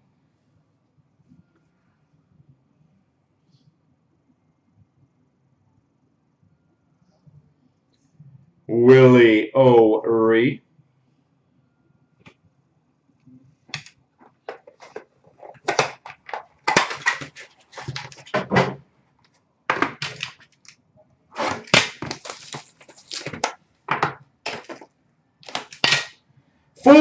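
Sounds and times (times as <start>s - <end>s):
packaging crinkling and rustling: 13.8s - 18.5s, 19.7s - 26.1s.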